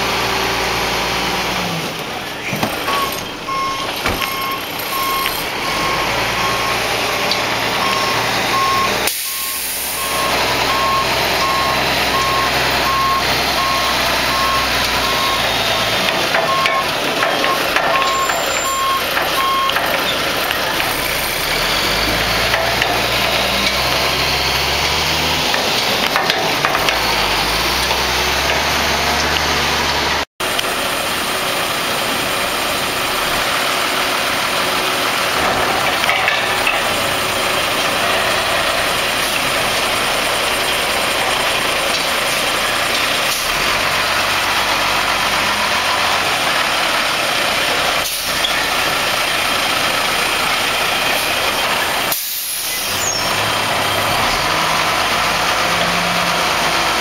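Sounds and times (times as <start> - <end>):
garbage truck diesel engine: 0.0 - 57.0.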